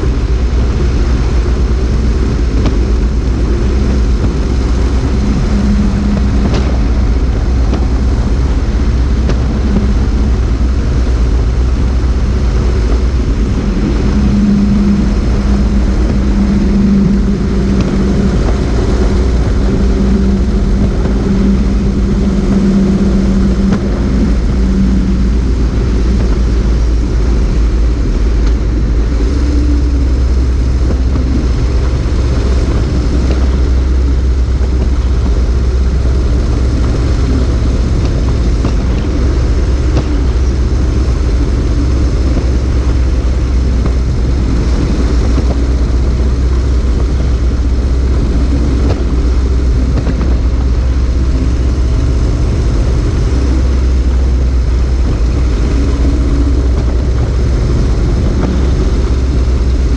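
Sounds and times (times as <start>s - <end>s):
wind on microphone: 0.0s - 59.9s.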